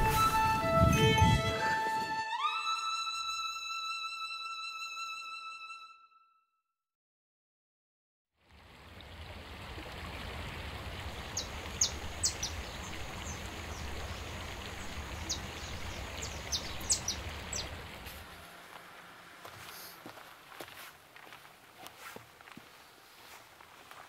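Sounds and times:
small birds chirping: 0:11.2 - 0:18.2.

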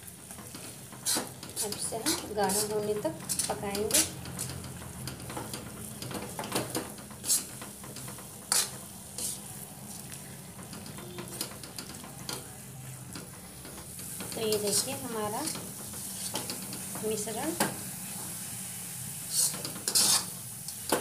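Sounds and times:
mixture sizzling: 0:00.0 - 0:21.0
spoon stirring and scraping pan: 0:00.0 - 0:21.0
spoon tapping on pan: 0:10.6 - 0:12.5.

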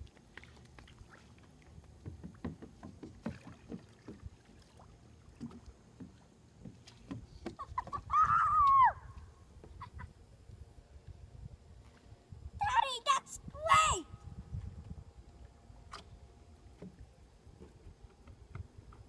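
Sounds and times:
kayak paddle splashes: 0:00.0 - 0:09.9.

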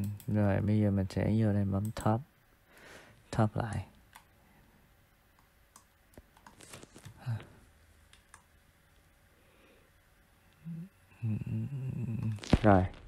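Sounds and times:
computer mouse clicks: 0:00.0 - 0:00.4, 0:05.4 - 0:07.2, 0:08.1 - 0:08.5.

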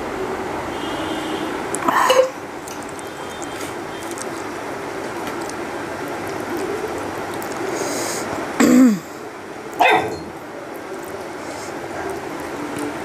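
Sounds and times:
steady background noise: 0:00.0 - 0:13.0
person clearing throat: 0:01.8 - 0:02.4, 0:08.6 - 0:09.1.

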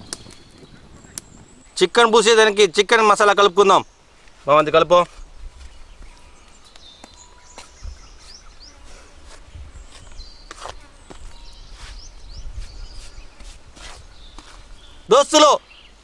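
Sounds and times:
wind rumble on microphone: 0:00.0 - 0:01.8, 0:04.9 - 0:06.9, 0:07.7 - 0:08.6, 0:09.2 - 0:10.4, 0:11.1 - 0:15.1
small birds chirping: 0:00.0 - 0:16.0.

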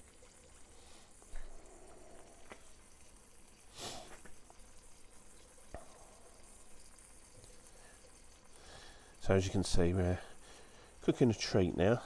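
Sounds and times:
bacon sizzling in a pan: 0:00.0 - 0:12.0
fat popping and spitting: 0:05.7 - 0:06.5.

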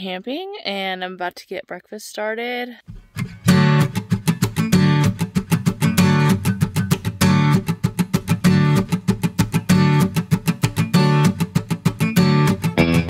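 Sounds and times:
acoustic guitar strumming: 0:02.9 - 0:13.0.

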